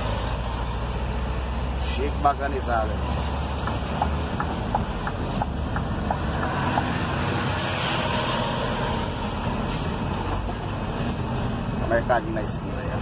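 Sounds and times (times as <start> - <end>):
truck engine and road noise: 0.0 - 13.0
wind: 0.0 - 13.0.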